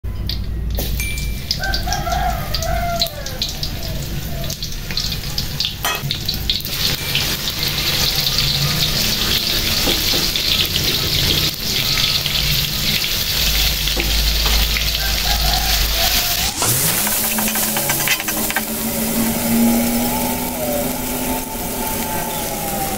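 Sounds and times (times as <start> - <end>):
food sizzling in hot oil: 0.8 - 22.9
rooster crowing: 1.5 - 4.6, 14.5 - 22.9
metal spatula stirring in wok: 16.2 - 18.9.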